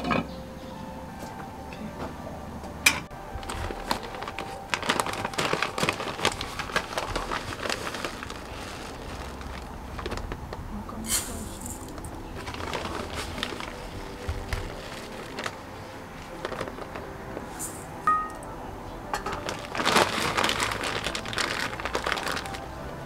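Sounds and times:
plastic bag rustling and crackling: 0:03.2 - 0:18.5, 0:19.1 - 0:23.0
dry grains pouring into a bowl: 0:11.1 - 0:13.7.

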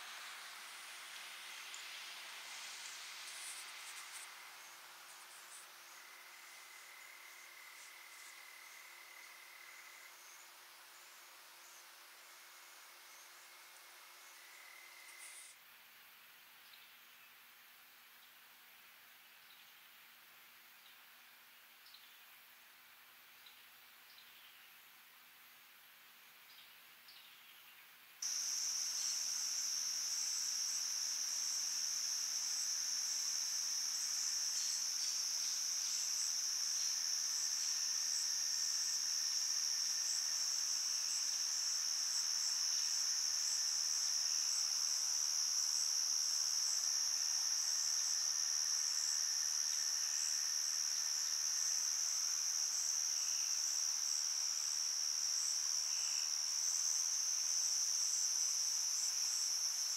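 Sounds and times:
crickets trilling: 0:00.0 - 0:15.5, 0:28.2 - 0:59.9.

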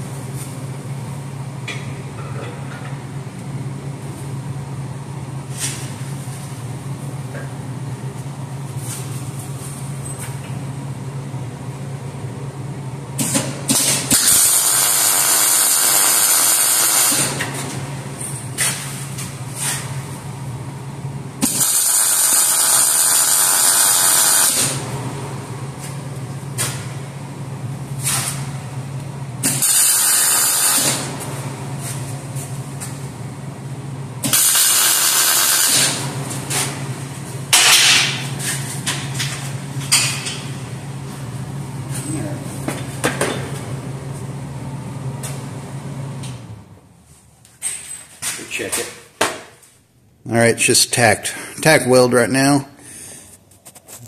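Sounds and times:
welding arc hissing and crackling: 0:14.1 - 0:17.4, 0:21.4 - 0:24.8, 0:29.4 - 0:31.1, 0:34.2 - 0:36.1.

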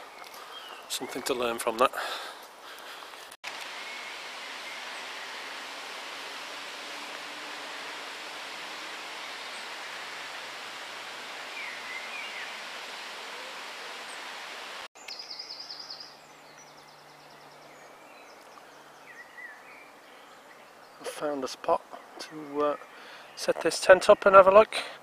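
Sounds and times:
outdoor background noise: 0:00.0 - 0:25.0.

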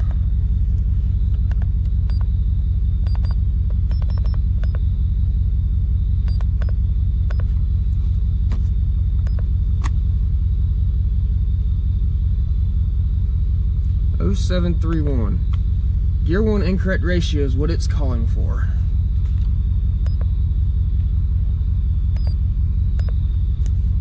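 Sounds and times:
engine idling: 0:00.0 - 0:24.0
faint beeps: 0:02.0 - 0:05.0, 0:06.1 - 0:07.6, 0:09.2 - 0:09.6, 0:20.0 - 0:20.5, 0:22.1 - 0:23.6
button clicks: 0:03.0 - 0:04.8.

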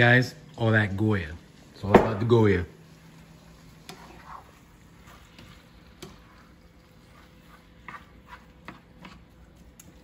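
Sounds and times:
spatula scraping in skillet: 0:02.8 - 0:10.0
spatula tapping pan: 0:07.5 - 0:09.9.

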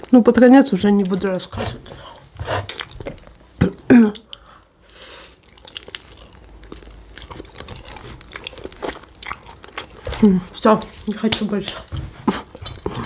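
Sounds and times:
chewing pastry: 0:00.0 - 0:13.0
plastic wrapper crinkling: 0:05.4 - 0:11.9.

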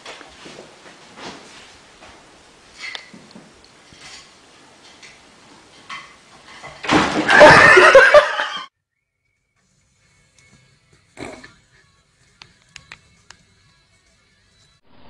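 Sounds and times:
sudden clatter: 0:05.8 - 0:08.0
people laughing loudly: 0:07.3 - 0:08.7.

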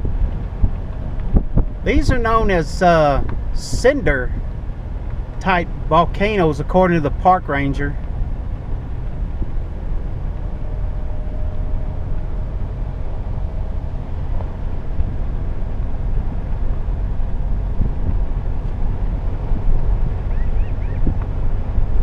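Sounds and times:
wind on microphone: 0:00.0 - 0:05.6, 0:08.1 - 0:22.0
car road rumble: 0:00.0 - 0:22.0.

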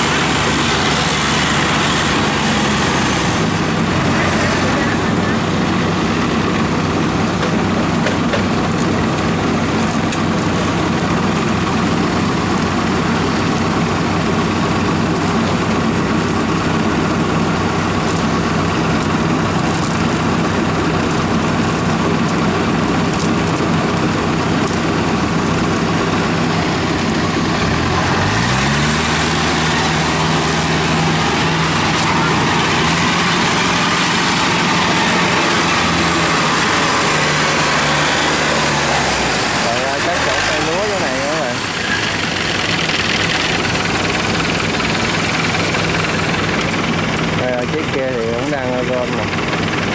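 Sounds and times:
engine revving up: 0:00.0 - 0:08.8, 0:26.0 - 0:49.2
harvester engines running: 0:00.0 - 0:49.9.

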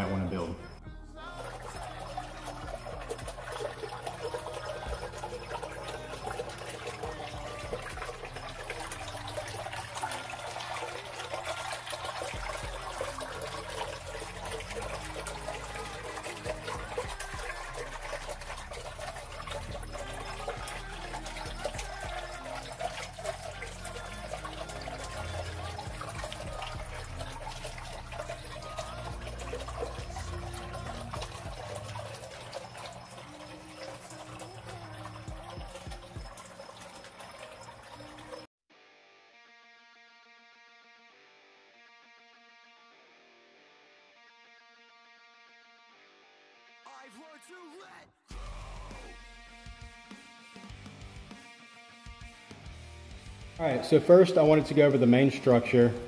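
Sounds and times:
water trickling and splashing: 0:00.7 - 0:38.5, 0:53.1 - 0:56.0.

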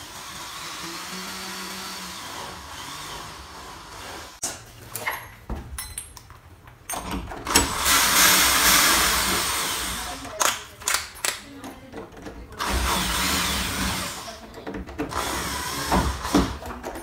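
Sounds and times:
drill motor running: 0:00.0 - 0:04.4, 0:07.6 - 0:10.2, 0:12.6 - 0:14.4, 0:15.1 - 0:16.6.

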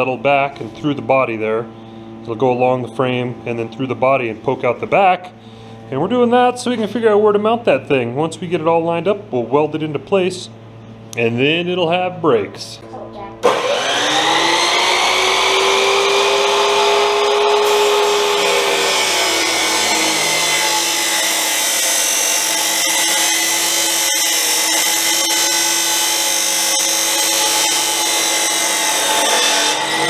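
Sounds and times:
chop saw cutting steel: 0:13.4 - 0:30.0.

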